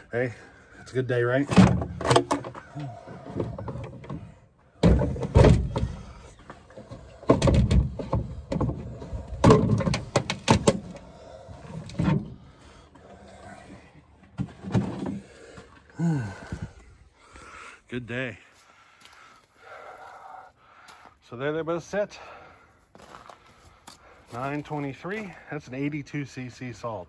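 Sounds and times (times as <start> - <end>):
knocks and clunks: 1.4 - 12.5, 14.2 - 16.8.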